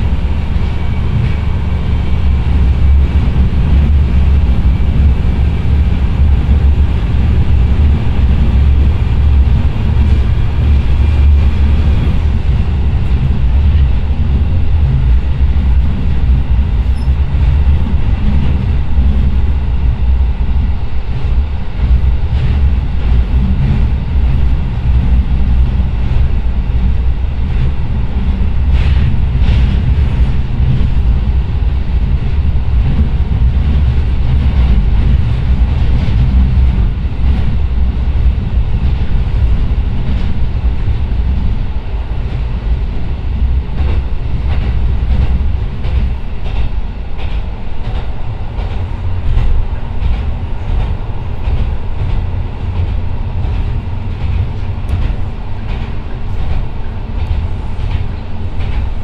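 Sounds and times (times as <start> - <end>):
diesel engine droning: 0.0 - 45.8.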